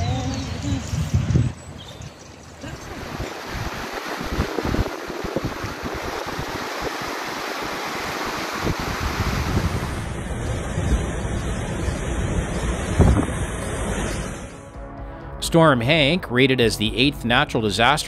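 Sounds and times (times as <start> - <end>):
wind buffeting microphone: 0.0 - 14.2
floodwater rushing: 2.4 - 14.7.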